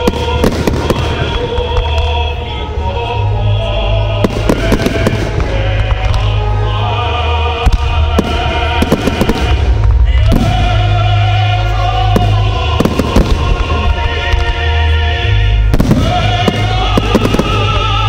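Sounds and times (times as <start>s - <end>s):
fireworks bangs and crackle: 0.0s - 2.3s, 4.2s - 6.4s, 7.6s - 11.3s, 12.0s - 14.6s, 15.7s - 18.0s
loud music with held notes: 0.0s - 18.0s.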